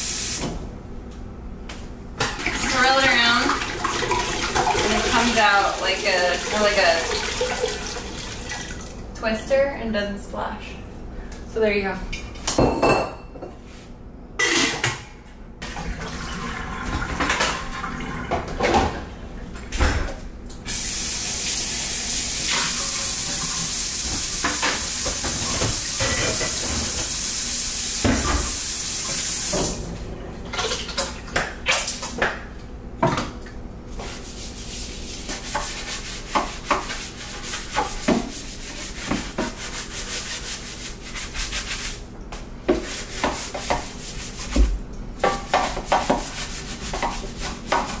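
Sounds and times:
sink being scrubbed: 2.2 - 8.8, 20.7 - 29.8, 33.9 - 48.0
faucet running into sink: 2.4 - 9.0, 15.6 - 18.9, 20.7 - 27.3
dishes clinking: 12.5 - 13.6, 14.4 - 15.1.

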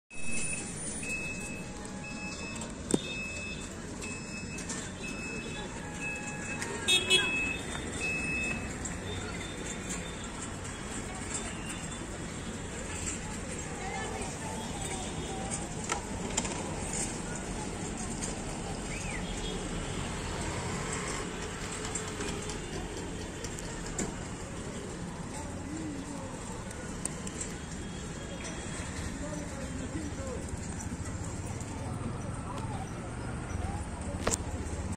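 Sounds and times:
faint high beep: 0.1 - 8.7
low traffic hum: 0.2 - 34.9.

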